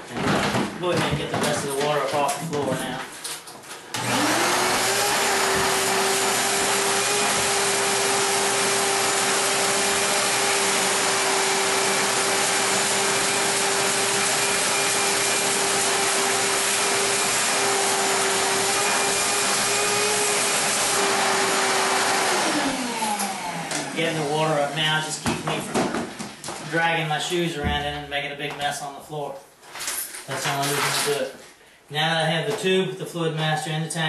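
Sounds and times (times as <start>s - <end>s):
shop vacuum sucking water: 4.0s - 25.2s.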